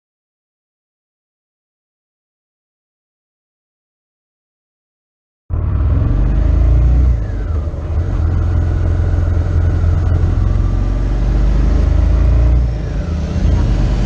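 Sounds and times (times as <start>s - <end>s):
motorcycle engine running: 5.5s - 14.0s.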